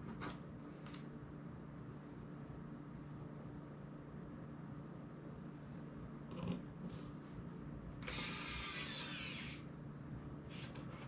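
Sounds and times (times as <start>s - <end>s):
electric screwdriver whirring: 8.0s - 9.6s.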